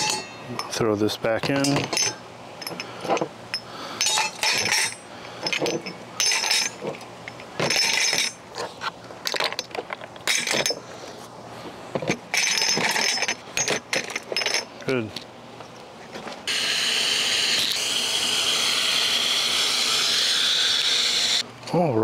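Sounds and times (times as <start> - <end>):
glass bottles clinking: 0.0 - 0.8, 1.4 - 8.4, 12.1 - 14.7.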